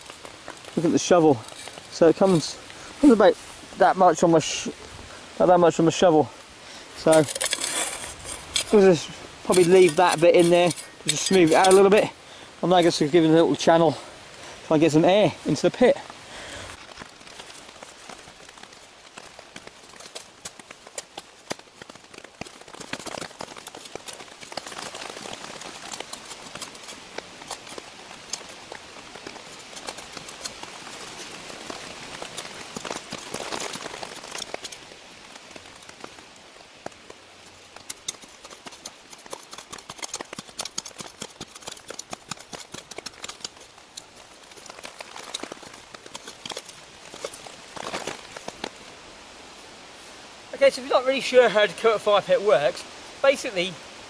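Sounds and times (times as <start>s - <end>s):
shovel digging and scraping soil: 0.0s - 3.3s, 7.0s - 13.8s, 17.0s - 36.2s, 36.8s - 48.8s.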